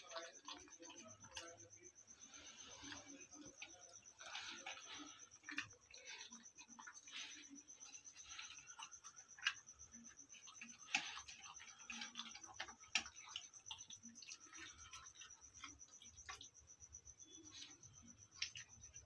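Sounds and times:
dog eating from metal bowl: 0:00.0 - 0:19.0
faint high whine: 0:00.0 - 0:19.0.

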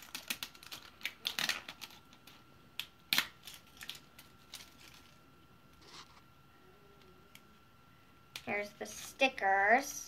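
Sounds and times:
plastic wrapping crinkling and tearing: 0:00.0 - 0:05.2.

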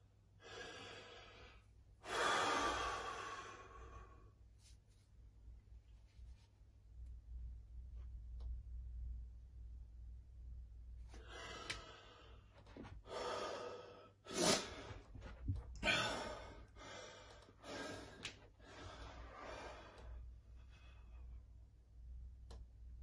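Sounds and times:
man breathing hard: 0:00.4 - 0:04.4, 0:11.1 - 0:21.4.

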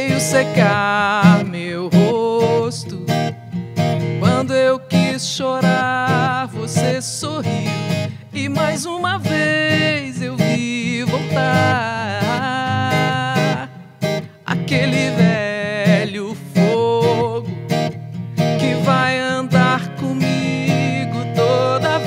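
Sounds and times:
strummed acoustic guitar: 0:00.0 - 0:22.0
woman singing: 0:18.6 - 0:22.0.

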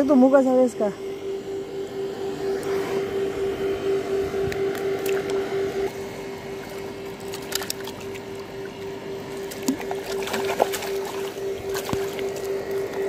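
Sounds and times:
motor hum: 0:00.0 - 0:13.0
water splashing and sloshing: 0:06.6 - 0:13.0.

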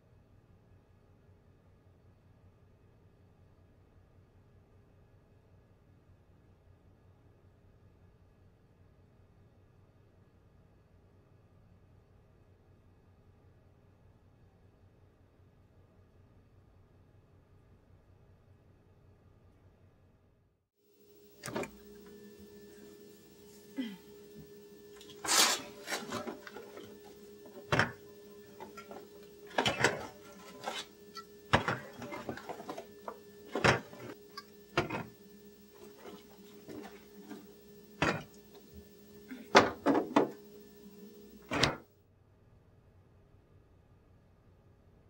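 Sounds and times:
refrigerator hum: 0:20.9 - 0:41.9.

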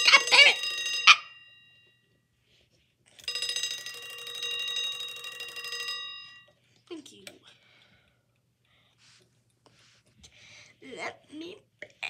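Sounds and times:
alarm clock bell ringing: 0:00.0 - 0:02.2, 0:03.2 - 0:06.6.

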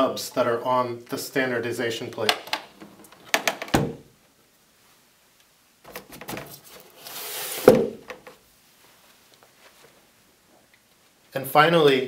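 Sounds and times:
short rustling slide: 0:06.5 - 0:07.8
solid thump: 0:07.6 - 0:08.2.

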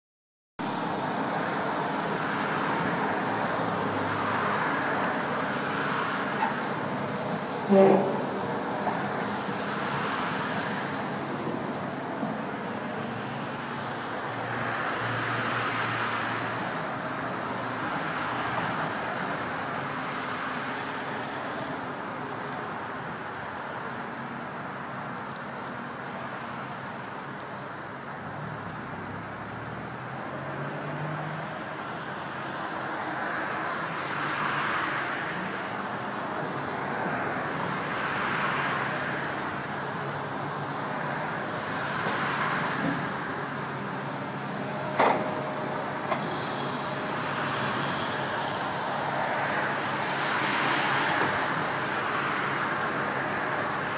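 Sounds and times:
road traffic rumble: 0:00.6 - 0:53.9
vehicles passing: 0:00.6 - 0:53.9.

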